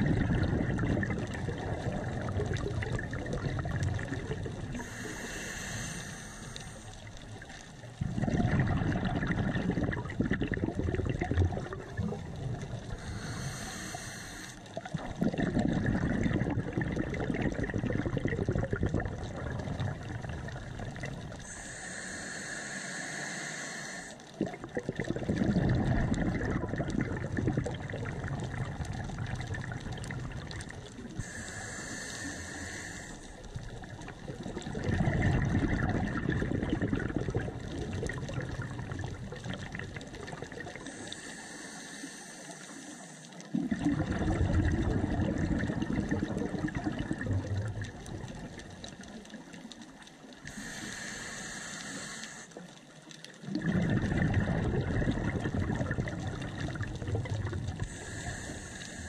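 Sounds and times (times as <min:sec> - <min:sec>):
burble of exhaled bubbles: 0:00.0 - 0:21.8, 0:24.2 - 0:41.3, 0:43.4 - 0:50.9, 0:52.6 - 0:59.0
hissing inhale through regulator: 0:03.8 - 0:10.5, 0:12.7 - 0:15.1, 0:19.8 - 0:24.4, 0:25.4 - 0:35.4, 0:36.6 - 0:43.9, 0:50.0 - 0:53.7, 0:55.1 - 0:59.0.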